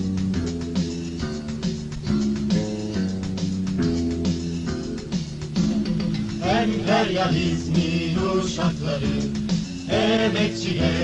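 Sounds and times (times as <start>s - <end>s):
strummed guitar chords: 0.0s - 8.3s
bass line: 0.0s - 11.0s.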